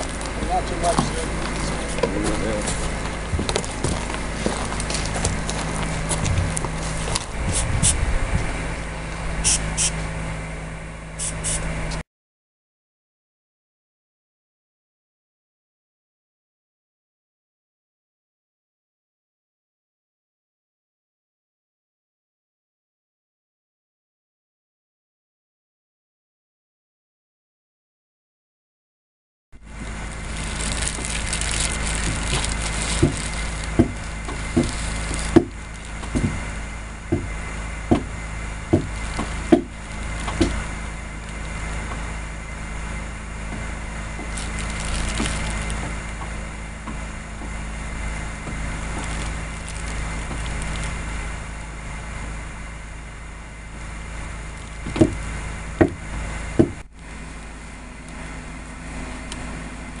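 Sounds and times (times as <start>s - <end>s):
steady low hum: 0.0s - 12.0s, 29.6s - 60.0s
tool knocking on wood: 33.8s - 34.7s, 35.4s - 36.4s, 37.1s - 39.7s, 54.9s - 55.2s, 55.8s - 56.0s, 56.6s - 56.8s.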